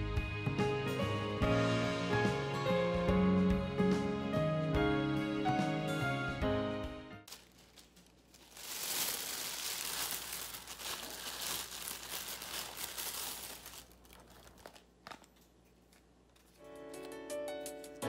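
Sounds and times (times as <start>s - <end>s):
plastic bag rustling: 7.3s - 16.6s.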